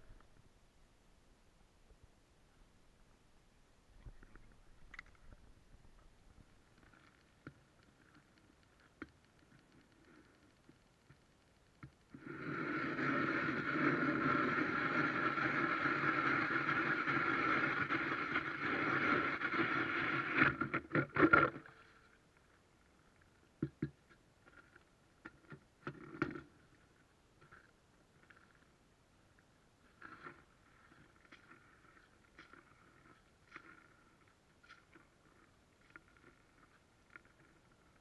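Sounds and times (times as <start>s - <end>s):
ice auger grinding: 12.2s - 21.4s.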